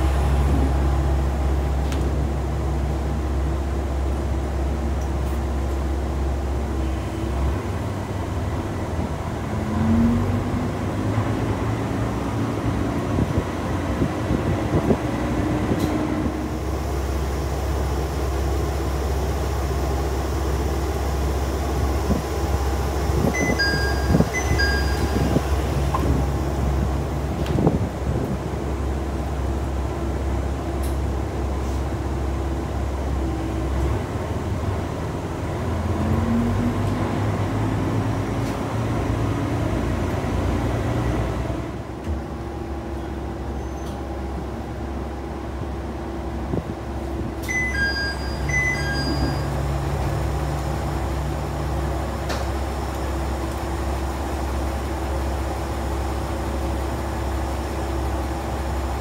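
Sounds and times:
low drone of railcar engine: 0:00.0 - 0:59.0
short high electronic beeps: 0:23.4 - 0:25.4, 0:47.5 - 0:49.6.

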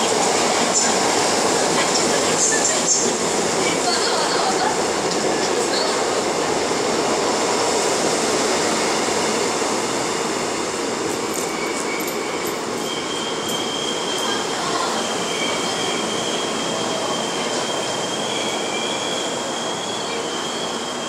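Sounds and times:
high brake squeal: 0:11.4 - 0:21.0.

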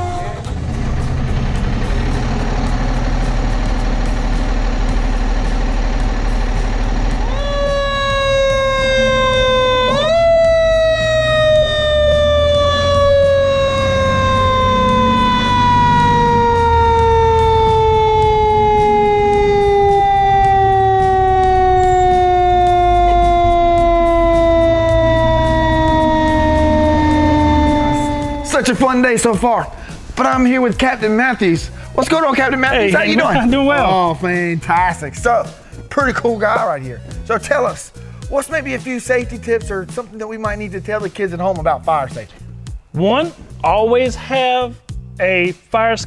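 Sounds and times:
fire truck siren: 0:00.0 - 0:30.0
low engine rumble: 0:00.0 - 0:43.7.

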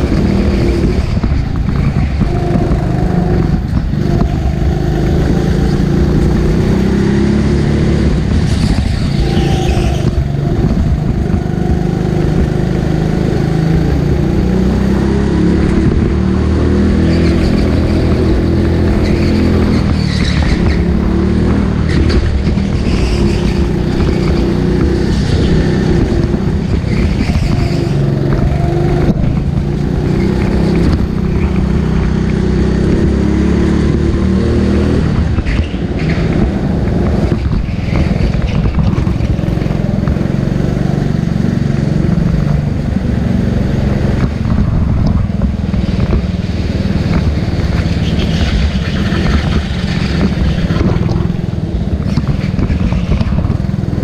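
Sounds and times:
go-kart engine revving: 0:00.0 - 0:54.0.

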